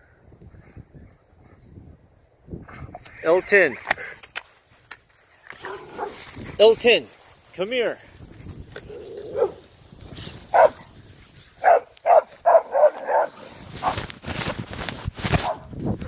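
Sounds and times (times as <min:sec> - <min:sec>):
handling rustle: 0:03.5 - 0:16.0
dogs barking: 0:05.6 - 0:06.2, 0:09.0 - 0:09.7, 0:10.5 - 0:10.9, 0:11.6 - 0:14.0.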